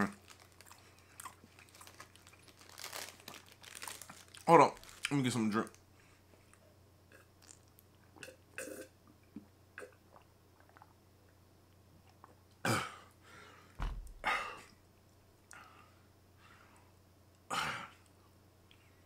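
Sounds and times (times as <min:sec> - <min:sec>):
man gulping water: 0:08.2 - 0:11.0
low thump: 0:13.8 - 0:14.4.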